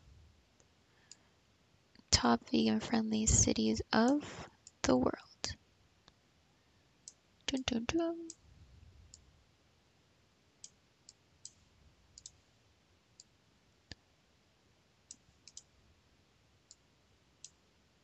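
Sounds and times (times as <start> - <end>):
faint computer mouse clicks: 12.2 - 12.4, 15.1 - 15.7.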